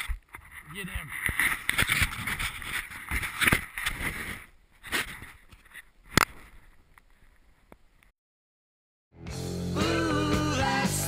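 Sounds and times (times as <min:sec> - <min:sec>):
microphone handling noise: 0:00.0 - 0:07.7.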